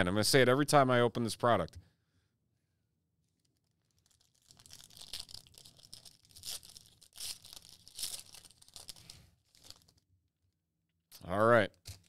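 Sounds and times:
card pack wrapper tearing: 3.5 - 10.0.

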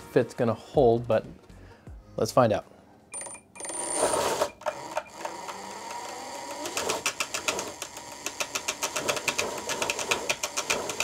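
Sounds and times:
motor-driven fan spinning up: 3.6 - 11.0
rapid clicking rattle: 6.5 - 11.0.

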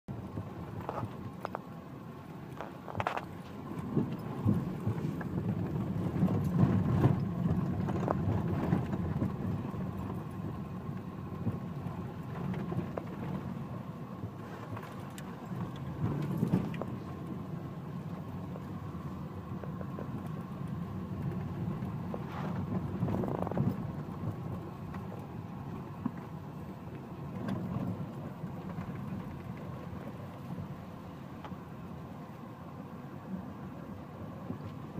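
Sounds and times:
car engine and road rumble: 0.0 - 34.9.

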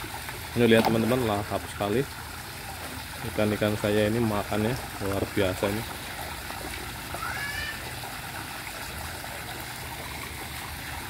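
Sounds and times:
fish splashing at surface: 0.0 - 3.3, 4.8 - 11.0
water pouring into pond: 0.0 - 11.0.

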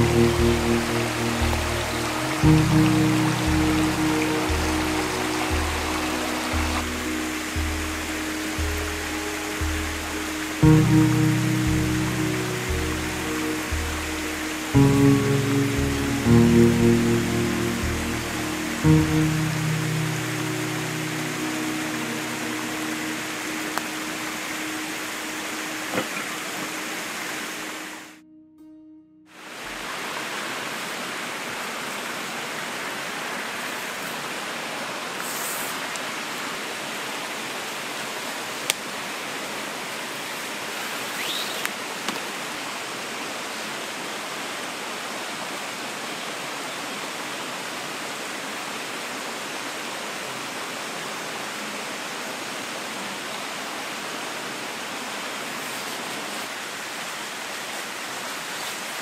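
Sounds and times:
forest stream rushing: 0.0 - 28.2, 29.4 - 59.0.

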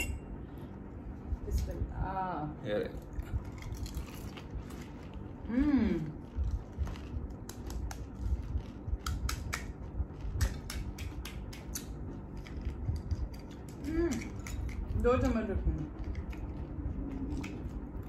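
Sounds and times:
crisp shells crunching: 3.4 - 5.4.

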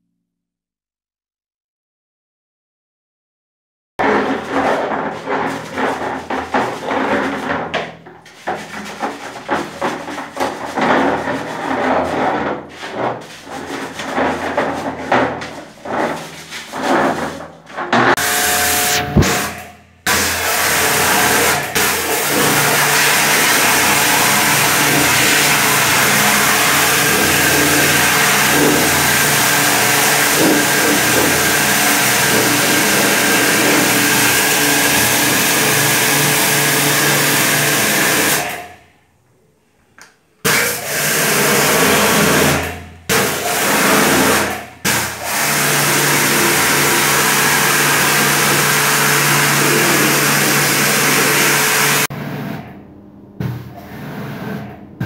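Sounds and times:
pressure washer motor hum: 4.0 - 38.5, 40.4 - 52.8
water jet spraying on plastic: 18.2 - 38.4, 40.4 - 52.1.

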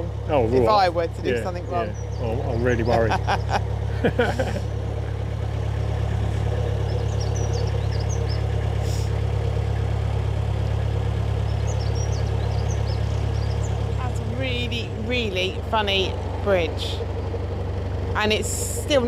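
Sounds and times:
boat diesel engine humming: 0.0 - 19.0
faint bird chirps: 5.7 - 9.1, 11.4 - 14.1.

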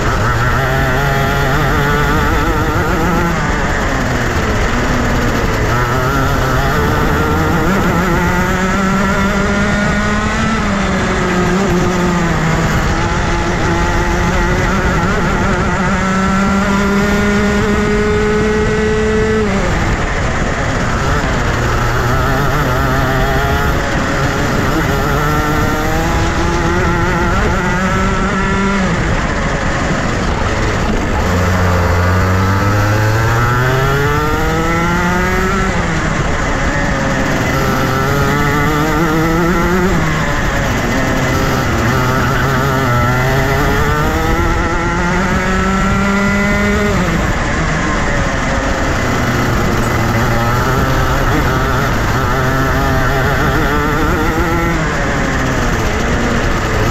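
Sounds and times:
kart engine revving: 0.0 - 56.9.

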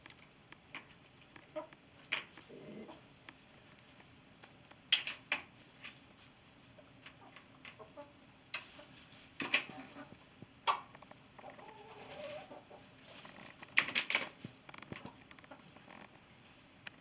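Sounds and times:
rooster clucking softly: 2.4 - 3.1, 9.6 - 13.0.

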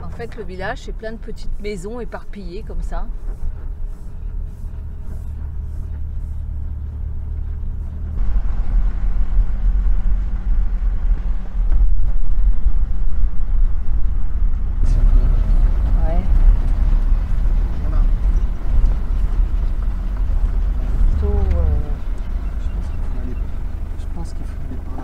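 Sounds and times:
truck engine and road rumble: 0.0 - 25.0.

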